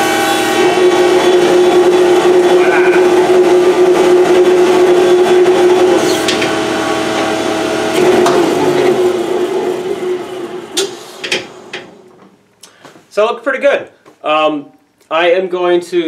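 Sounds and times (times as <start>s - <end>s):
jointer motor humming: 0.0s - 12.3s.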